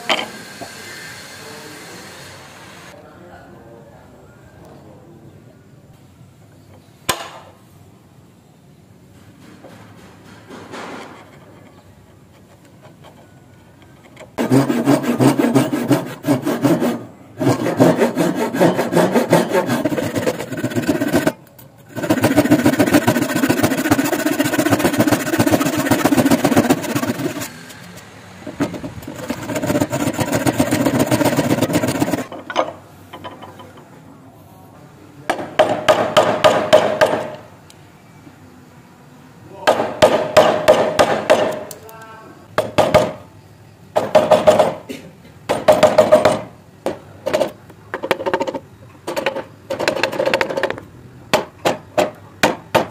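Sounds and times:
hand saw cutting wood: 14.4 - 32.3.

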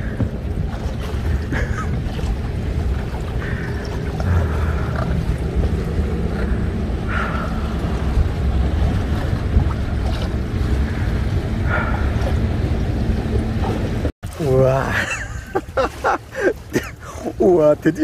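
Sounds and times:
wind buffeting microphone: 0.0 - 14.1
small boat engine rumble: 0.0 - 18.0.

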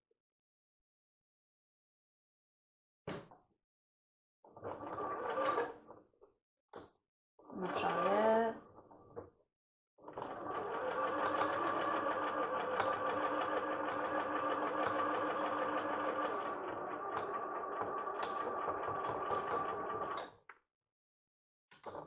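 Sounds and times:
sewing machine stitching: 4.6 - 5.8, 7.6 - 8.5, 10.1 - 20.3.

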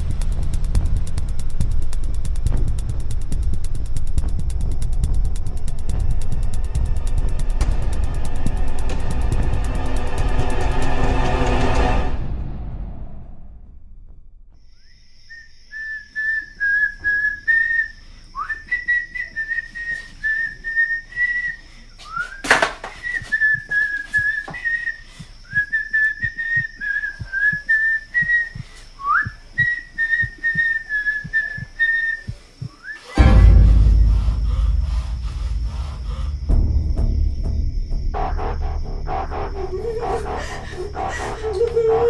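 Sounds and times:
person whistling a tune: 15.3 - 36.2, 39.6 - 42.0
faint low knocks: 32.6 - 38.1
sharp loud hit: 33.2 - 37.4.

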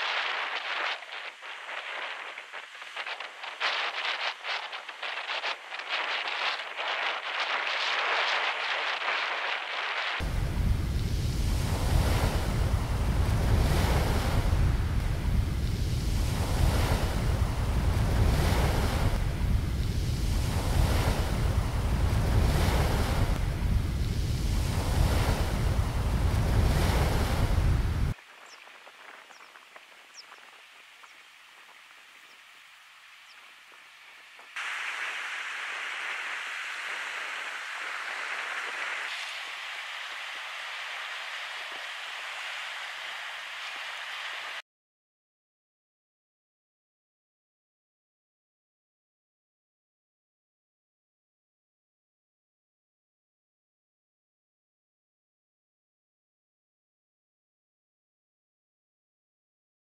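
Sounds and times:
surf washing against rocks: 0.0 - 44.6
wind rumbling on microphone: 0.0 - 44.6
steady hiss: 28.1 - 44.6.

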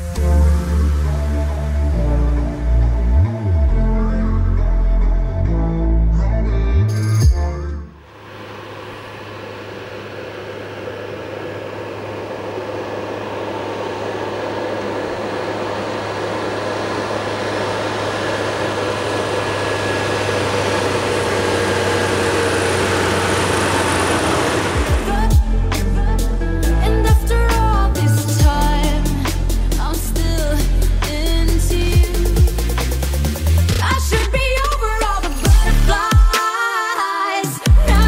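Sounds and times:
music: 0.0 - 8.0, 24.8 - 38.0
tyres on paved road: 8.0 - 29.0
tractor diesel engine passing: 8.0 - 35.9.

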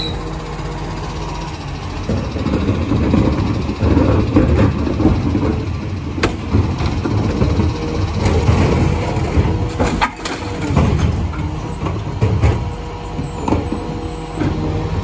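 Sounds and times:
diesel engine running: 0.0 - 15.0
hydraulic bin lifter: 0.0 - 15.0
bin knocks and rubbish clatter: 8.2 - 14.7.

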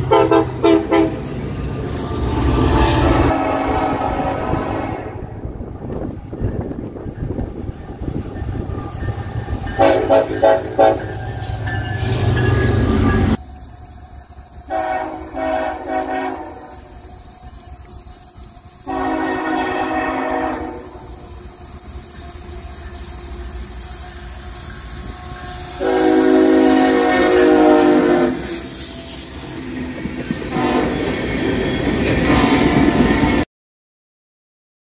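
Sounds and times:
locomotive air horn blasts: 0.0 - 1.2, 2.5 - 5.4, 9.8 - 11.3, 14.7 - 16.9, 18.8 - 21.2, 25.0 - 29.3, 30.5 - 31.1
rumble of passing trains: 0.0 - 33.5.

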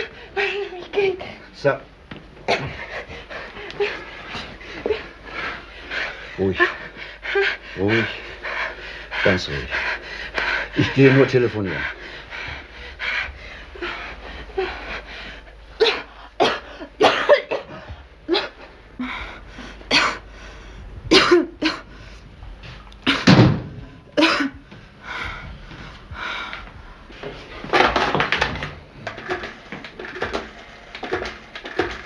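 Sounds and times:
woman coughing and gasping: 2.5 - 2.9, 15.8 - 18.6, 19.9 - 20.2, 21.1 - 21.9, 23.0 - 23.4, 24.2 - 24.6.

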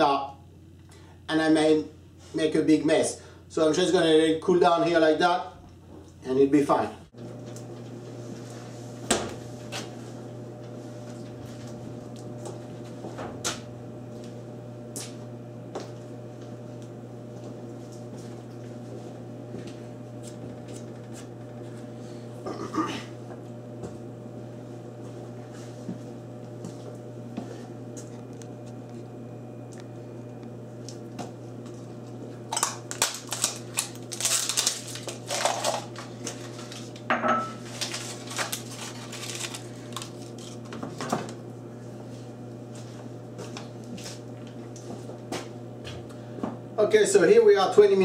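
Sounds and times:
steady low hum: 0.0 - 48.0
dishes clinking on steel worktop: 37.1 - 37.6.

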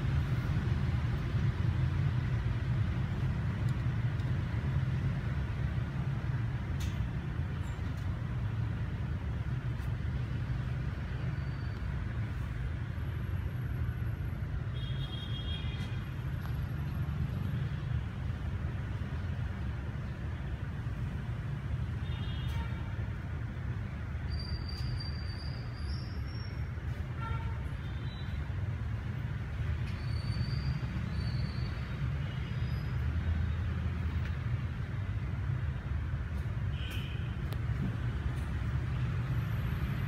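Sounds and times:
low rumble of street traffic: 0.0 - 40.0.

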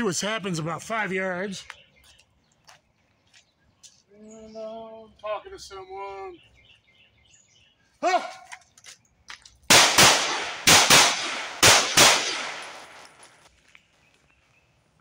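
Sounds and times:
person shouting: 8.0 - 8.5
pistol shots with echo: 9.7 - 13.2.

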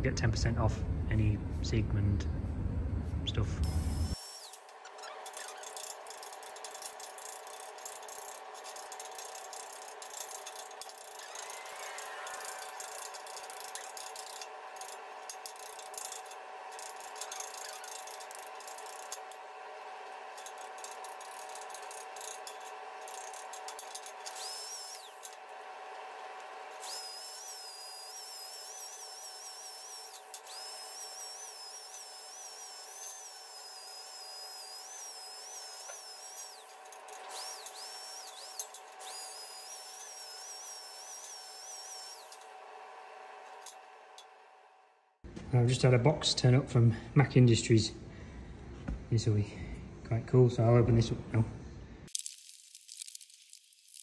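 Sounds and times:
high-speed power tool whining: 3.6 - 44.4
tools clicking and rattling: 4.4 - 19.4, 20.3 - 25.4, 35.8 - 40.2.

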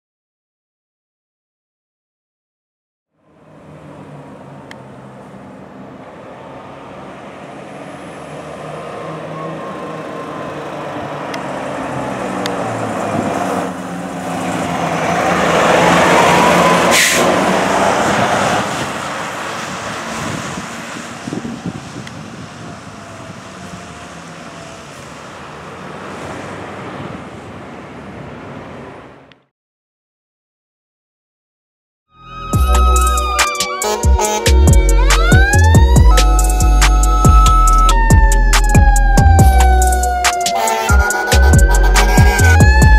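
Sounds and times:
fire engine diesel engine passing: 3.2 - 29.3, 32.3 - 42.9
siren wailing: 8.1 - 19.0, 21.5 - 25.3, 32.1 - 42.9.

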